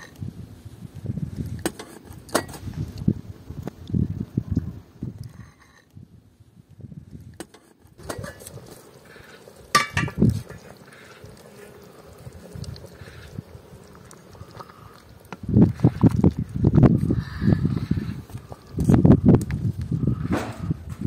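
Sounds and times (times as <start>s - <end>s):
stew boiling in pot: 0.0s - 21.0s
wooden spoon stirring pot: 7.4s - 19.0s.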